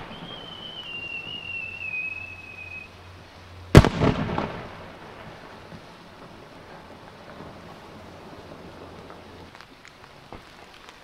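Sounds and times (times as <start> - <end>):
firework whistle: 0.0 - 3.0
firework shell bang: 3.8 - 4.7.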